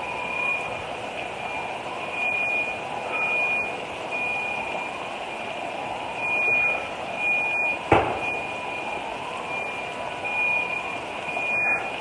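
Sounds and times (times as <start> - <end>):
electronic alarm beeping: 0.1 - 0.7, 1.4 - 5.0, 6.2 - 12.0.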